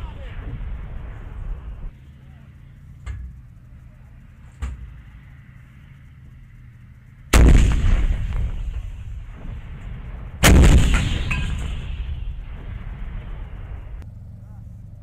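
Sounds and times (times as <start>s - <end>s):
howitzer firing blasts: 0.0s - 3.7s, 7.3s - 14.0s.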